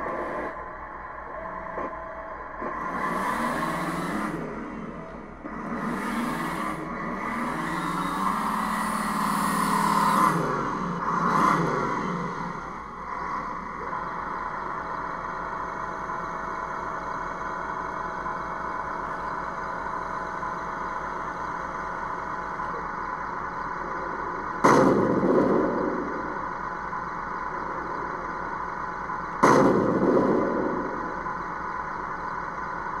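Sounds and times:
simulated engine sound: 0:00.0 - 0:33.0
electric motors whining: 0:01.3 - 0:24.6
simulated gunshots: 0:24.5 - 0:26.8, 0:29.3 - 0:31.7.

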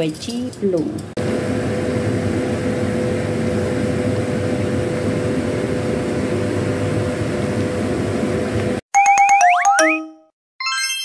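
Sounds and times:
steady mechanical hum: 0:00.0 - 0:08.8.

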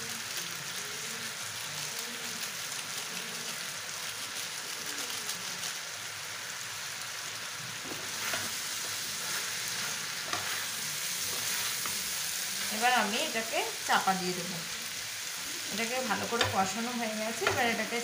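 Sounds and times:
food sizzling in a frying pan: 0:00.0 - 0:18.0
spatula scraping pan: 0:07.8 - 0:13.5, 0:15.3 - 0:18.0.

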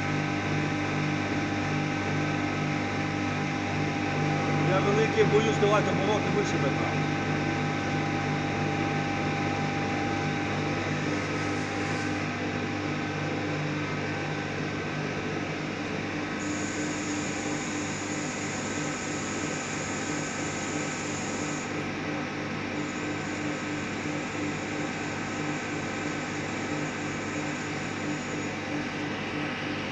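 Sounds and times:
lathe mechanical hum with whining: 0:00.0 - 0:29.9
thin high whine: 0:02.9 - 0:14.0.

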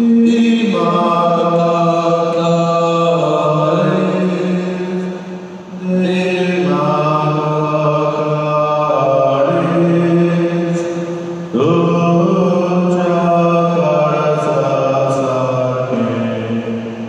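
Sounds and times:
person singing slow chant: 0:00.0 - 0:17.0.

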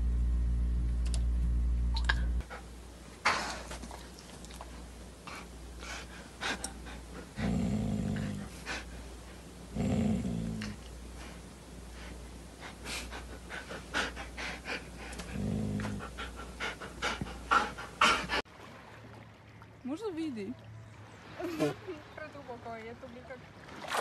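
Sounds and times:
dog growling: 0:05.3 - 0:09.1, 0:09.7 - 0:10.9, 0:12.7 - 0:18.4.

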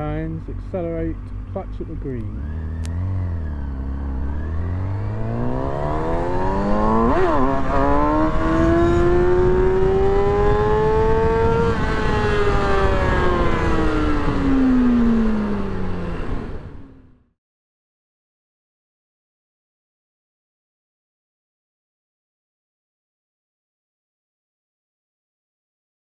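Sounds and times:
motorcycle engine revving: 0:00.1 - 0:17.2.

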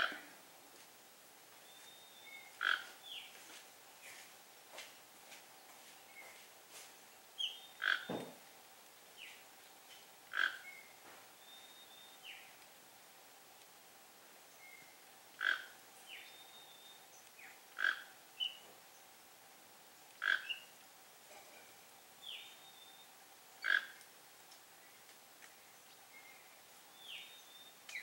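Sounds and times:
sharp animal calls: 0:02.6 - 0:03.0, 0:07.8 - 0:08.2, 0:10.3 - 0:10.7, 0:15.4 - 0:15.8, 0:17.8 - 0:18.5, 0:20.2 - 0:20.6, 0:23.6 - 0:24.0.

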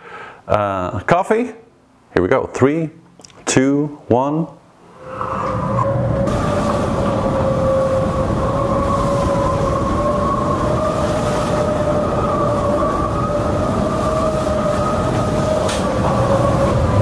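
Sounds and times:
wind: 0:01.7 - 0:17.0
underwater whine: 0:04.6 - 0:17.0
rushing water: 0:04.9 - 0:17.0.

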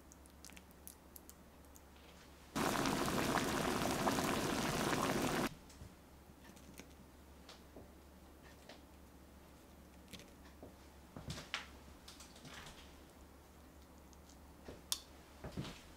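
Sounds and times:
water bubbling at a boil: 0:02.6 - 0:05.5.

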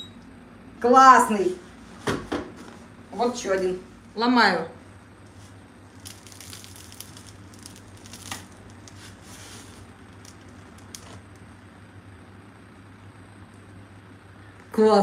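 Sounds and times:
bread crust crackling and tearing: 0:05.2 - 0:11.7.

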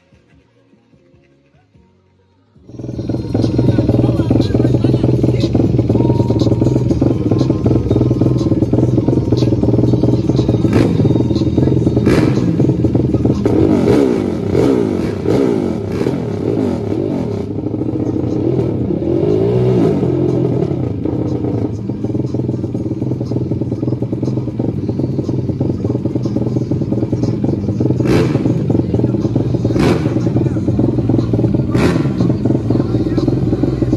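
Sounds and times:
atv engines revving and idling: 0:00.0 - 0:33.9.

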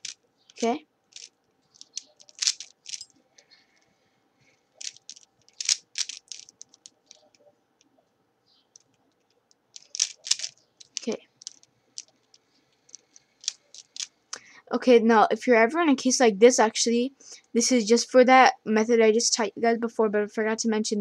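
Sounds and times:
puzzle cube clicking: 0:00.0 - 0:03.1, 0:04.8 - 0:07.4, 0:08.8 - 0:12.2, 0:12.9 - 0:14.1.

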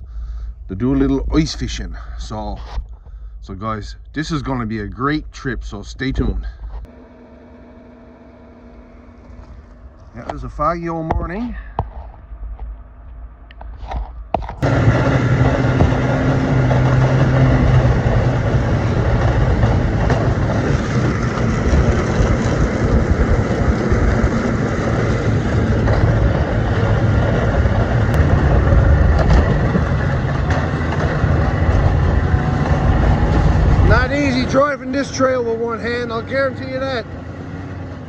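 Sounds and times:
snowmobile engine running: 0:14.6 - 0:38.0.

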